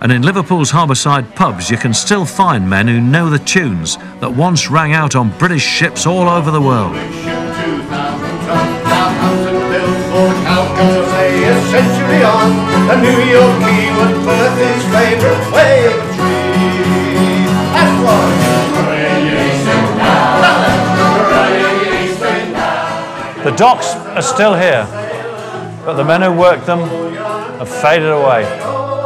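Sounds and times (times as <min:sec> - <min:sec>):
man singing: 0:00.0 - 0:21.8, 0:23.4 - 0:29.0
acoustic guitar: 0:00.0 - 0:29.0
button accordion: 0:04.0 - 0:24.1.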